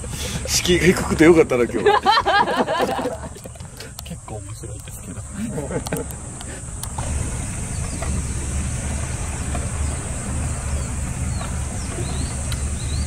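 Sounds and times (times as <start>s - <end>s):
boat engine droning: 0.0s - 13.0s
faint bird chirps: 9.7s - 13.0s.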